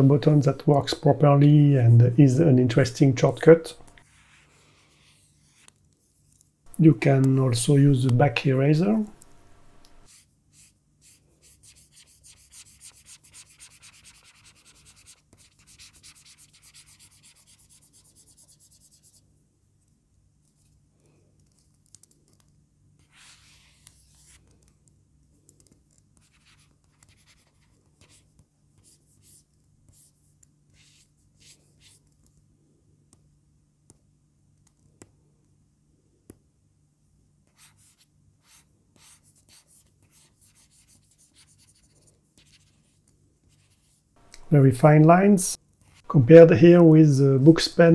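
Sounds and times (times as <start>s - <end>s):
stylus scratching on screen: 8.9s - 19.2s, 26.1s - 32.1s, 37.5s - 44.5s.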